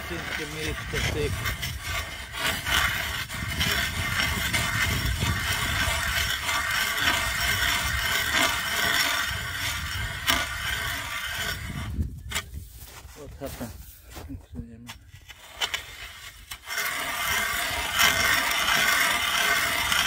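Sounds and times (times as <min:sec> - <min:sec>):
ice cracking: 0:00.0 - 0:13.8, 0:15.2 - 0:20.0
ice auger grinding into ice: 0:00.0 - 0:20.0.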